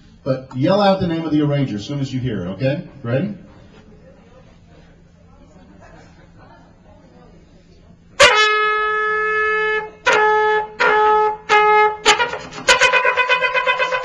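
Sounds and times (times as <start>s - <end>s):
solo trumpet: 8.2s - 14.0s.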